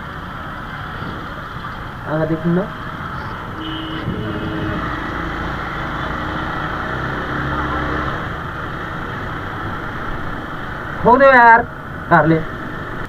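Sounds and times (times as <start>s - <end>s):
road noise: 0.0s - 13.0s
wind noise: 2.9s - 5.5s.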